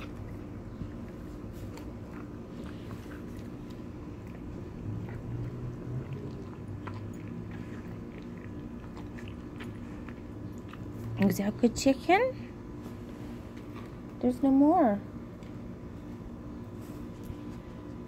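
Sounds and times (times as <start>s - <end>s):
dog chewing and licking: 0.0s - 11.8s, 13.0s - 14.2s
low hum: 0.0s - 18.0s.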